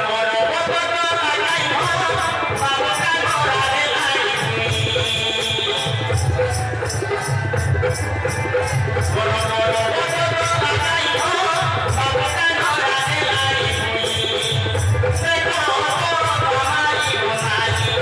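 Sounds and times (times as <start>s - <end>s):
jingling percussion: 1.3s - 18.0s
steady drum beat: 1.7s - 18.0s.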